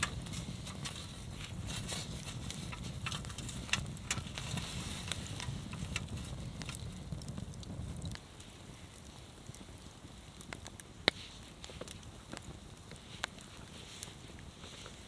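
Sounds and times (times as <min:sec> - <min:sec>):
steady low rumble: 0:00.0 - 0:10.8
campfire crackling and popping: 0:00.0 - 0:15.0.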